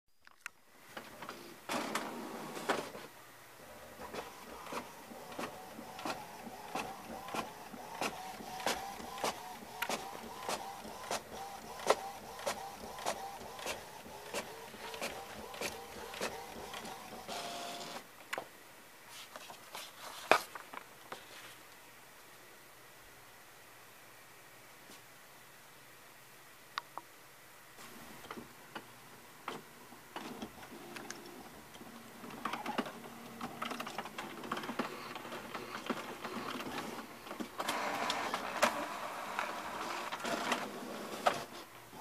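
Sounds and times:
printer motor hum: 0:03.6 - 0:18.0, 0:32.4 - 0:42.0.

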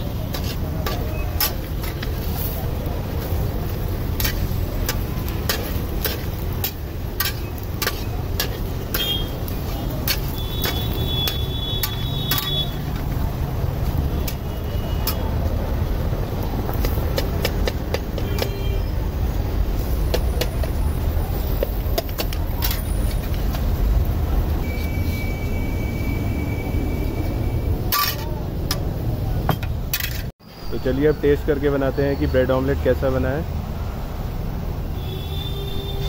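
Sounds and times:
spatula scraping frying pan: 0:00.0 - 0:13.1
road traffic rumble: 0:00.0 - 0:36.0.

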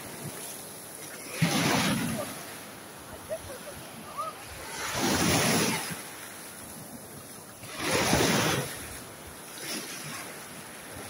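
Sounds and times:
small waves breaking on sand: 0:00.0 - 0:11.0.

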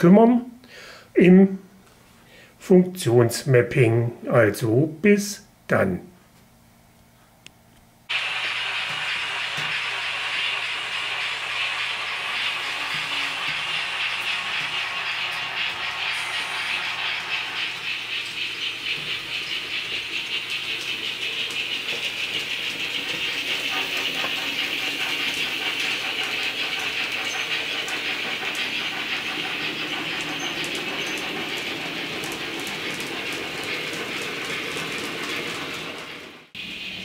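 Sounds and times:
rhythmic steam chuffing: 0:08.1 - 0:37.0
steam hiss: 0:08.1 - 0:37.0
wheels clicking over track: 0:08.1 - 0:37.0.

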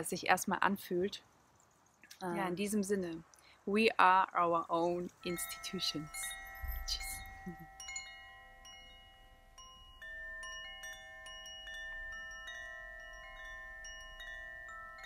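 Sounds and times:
chimes ringing: 0:05.0 - 0:15.0.

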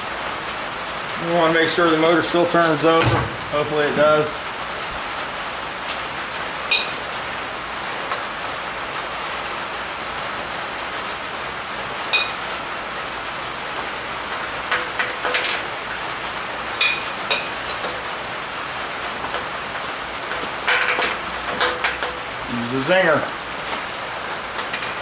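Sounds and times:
steady rushing hiss: 0:00.0 - 0:11.2.

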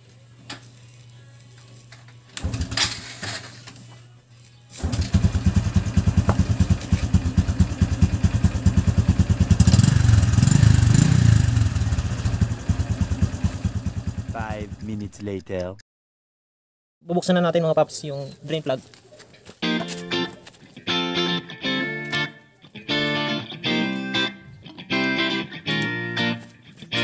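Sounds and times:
motorcycle engine idling: 0:02.4 - 0:03.4, 0:04.8 - 0:15.0
motorcycle engine kick-started: 0:02.4 - 0:03.7, 0:04.7 - 0:14.8.

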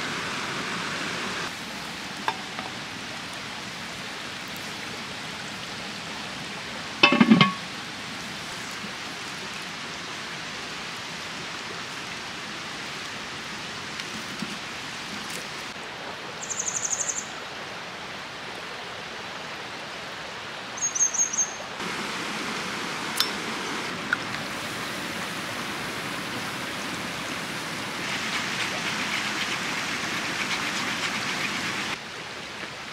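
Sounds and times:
flowing water: 0:00.0 - 0:16.5, 0:17.2 - 0:32.9
metal lid clanking on pot: 0:07.0 - 0:07.6.

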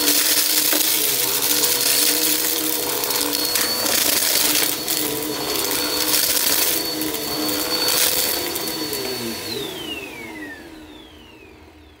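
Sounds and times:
crackling bursts: 0:00.0 - 0:09.0
vacuum cleaner whine: 0:00.0 - 0:12.0
vacuum motor winding down: 0:00.0 - 0:12.0.

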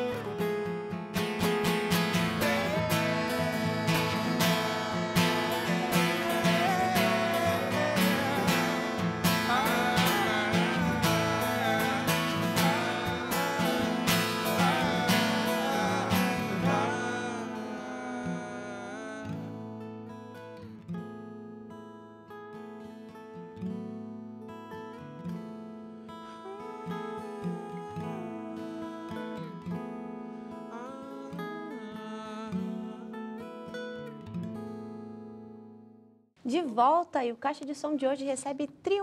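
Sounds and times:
acoustic guitars strumming: 0:00.0 - 0:36.1
man singing wordless melody: 0:01.5 - 0:19.8, 0:26.4 - 0:29.6, 0:30.5 - 0:33.2.

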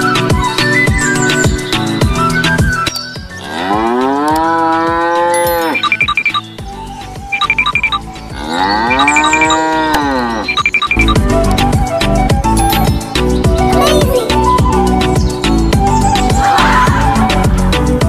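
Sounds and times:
cow mooing: 0:03.4 - 0:05.8, 0:08.3 - 0:10.6.

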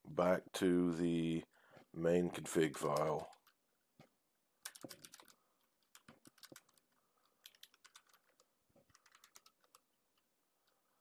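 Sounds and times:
faint keyboard typing: 0:02.8 - 0:11.0.

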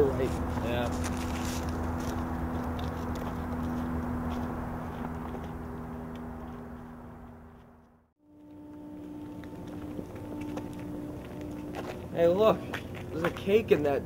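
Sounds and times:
footsteps on dry leaves: 0:00.0 - 0:07.7, 0:08.4 - 0:13.9
steady low hum: 0:00.0 - 0:14.0.

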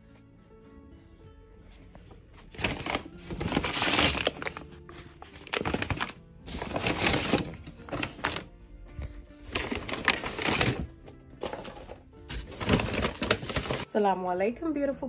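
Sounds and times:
quiet background music: 0:00.0 - 0:15.0
paper bag rustling: 0:02.4 - 0:13.9.

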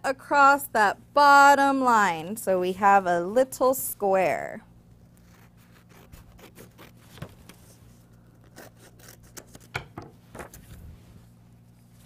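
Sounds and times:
scissors snipping paper: 0:08.4 - 0:09.7.

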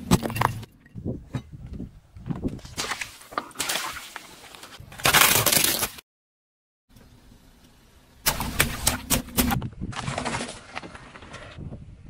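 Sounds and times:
tyre crushing plastic toy: 0:04.9 - 0:06.0.

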